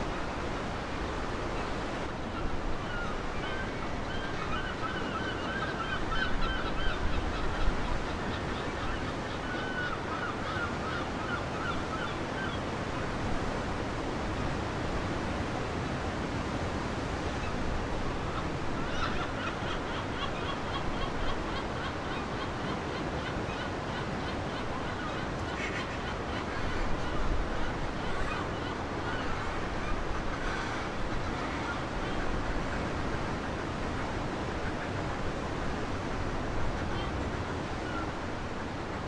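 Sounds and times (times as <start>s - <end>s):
surf washing over rocks: 0.0s - 4.9s
birds calling: 18.2s - 35.5s.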